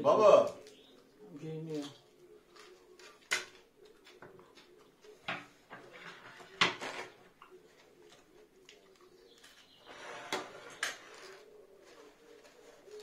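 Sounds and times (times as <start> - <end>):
clicks and knocks of eating: 1.7 - 9.7.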